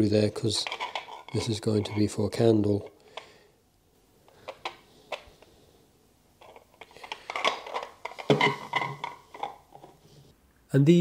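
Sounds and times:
plastic pieces clattering and scraping: 0:00.5 - 0:02.1, 0:06.4 - 0:10.0.

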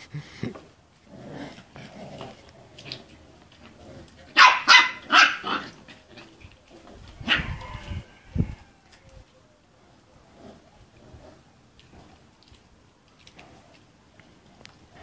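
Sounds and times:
puppies growling: 0:00.9 - 0:04.4
puppies barking: 0:04.3 - 0:06.2, 0:07.2 - 0:07.6.

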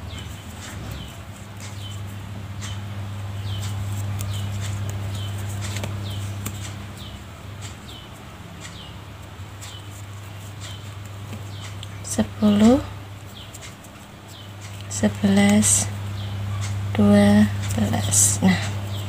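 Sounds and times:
bird chirping: 0:00.0 - 0:09.0, 0:14.3 - 0:16.8
low hum: 0:00.0 - 0:13.4.

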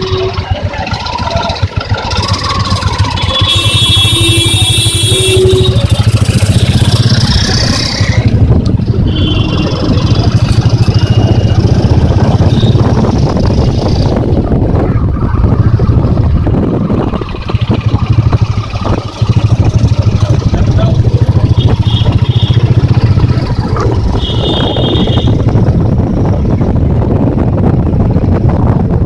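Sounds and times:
car horns: 0:00.0 - 0:00.8, 0:02.2 - 0:07.0, 0:08.9 - 0:13.1, 0:21.4 - 0:23.2, 0:24.0 - 0:25.6
traffic engines rumbling: 0:00.0 - 0:29.0.

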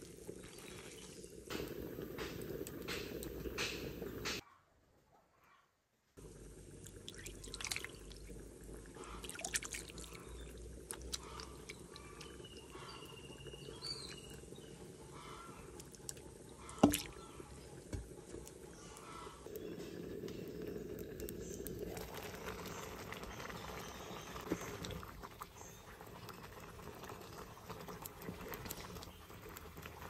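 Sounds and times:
wet mixture squelching: 0:06.8 - 0:08.3, 0:09.0 - 0:13.1.

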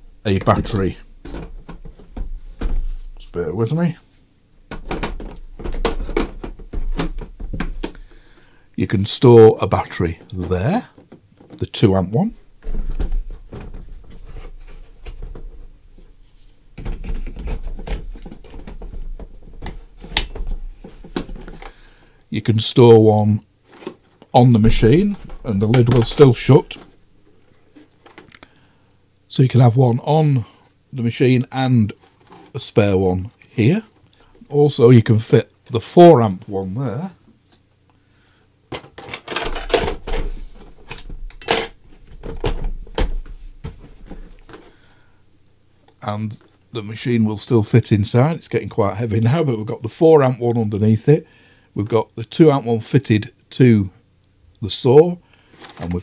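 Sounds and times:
hard plastic knocks and rattles: 0:00.4 - 0:03.0, 0:04.7 - 0:08.0, 0:12.6 - 0:15.7, 0:16.8 - 0:21.8, 0:38.7 - 0:44.6.

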